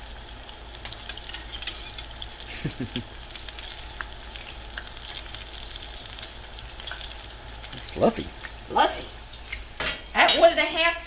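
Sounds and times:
deep-frying sizzle with pops: 0:00.0 - 0:11.0
metal spoon moving in pan: 0:01.2 - 0:02.1.

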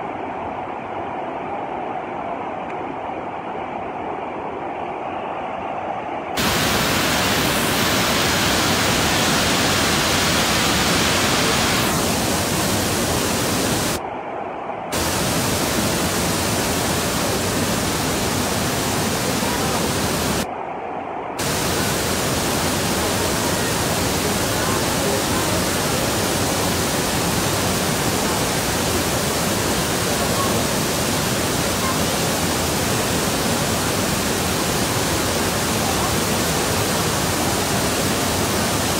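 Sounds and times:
river water roaring over rapids: 0:06.4 - 0:14.0, 0:14.9 - 0:20.5, 0:21.4 - 0:38.9.

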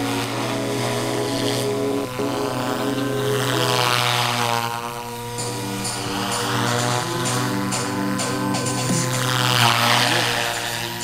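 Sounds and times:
rc helicopter motor whine: 0:00.0 - 0:11.0.

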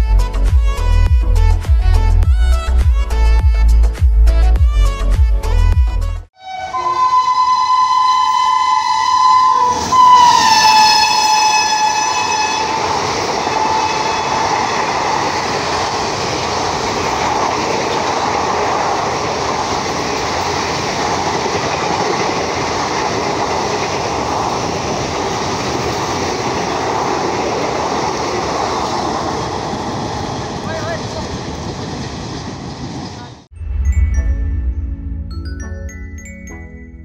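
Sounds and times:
locomotive horn: 0:06.4 - 0:14.8
train coaches rushing past: 0:06.5 - 0:33.5.

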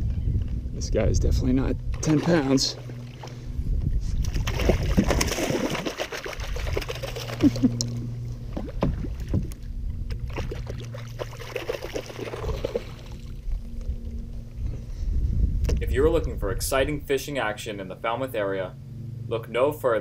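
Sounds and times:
water slapping against hull: 0:01.9 - 0:03.4, 0:04.1 - 0:13.7
fish splashing at the surface: 0:04.2 - 0:07.7, 0:10.1 - 0:13.3.

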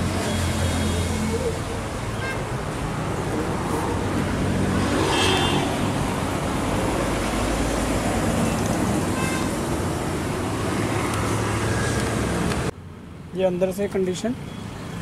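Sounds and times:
road traffic noise: 0:00.0 - 0:15.0
vehicle passing loudly: 0:02.5 - 0:12.7.

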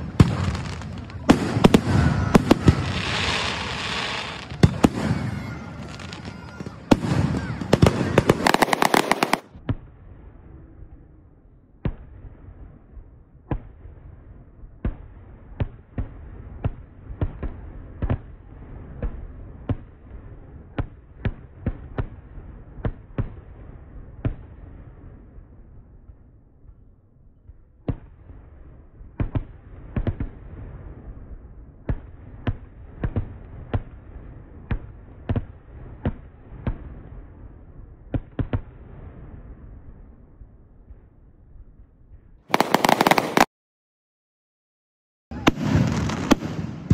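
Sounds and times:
fireworks bangs: 0:00.0 - 0:10.0, 0:42.5 - 0:43.5, 0:45.3 - 0:46.9.

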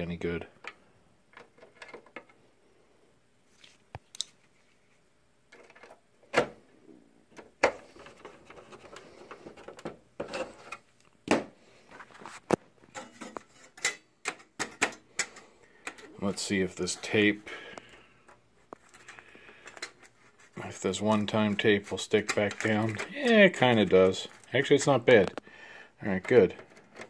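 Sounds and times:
clicks and knocks of parts: 0:00.6 - 0:02.4, 0:05.5 - 0:06.5, 0:12.5 - 0:16.1, 0:17.8 - 0:20.2, 0:21.1 - 0:25.4, 0:26.1 - 0:27.0.

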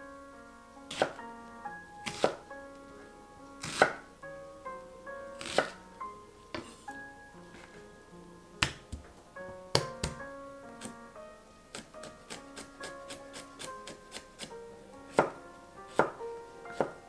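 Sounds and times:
knife slicing onion on cutting board: 0:00.9 - 0:01.2, 0:02.0 - 0:02.4, 0:03.6 - 0:04.0, 0:05.4 - 0:05.8, 0:11.7 - 0:14.5.

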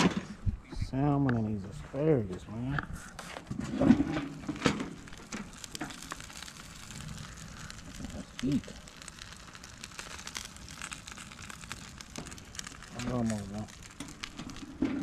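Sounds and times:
food sizzling on a grill: 0:03.1 - 0:15.0.

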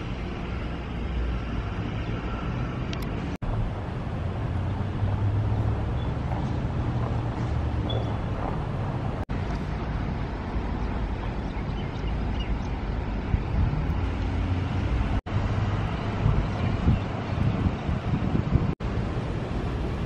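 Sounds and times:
street ambience: 0:00.0 - 0:20.0
wind buffeting microphone: 0:00.0 - 0:20.0.

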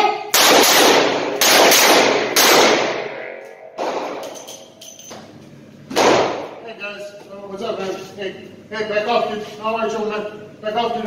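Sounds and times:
revolver gunshots echoing indoors: 0:00.0 - 0:05.1, 0:05.9 - 0:06.7.

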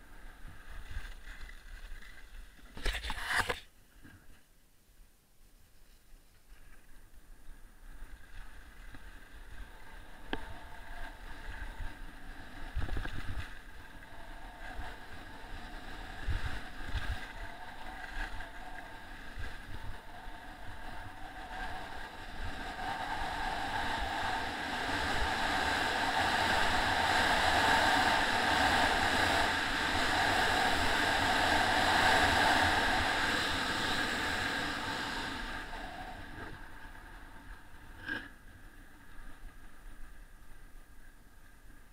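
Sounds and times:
wind rushing over microphone: 0:09.3 - 0:38.1.

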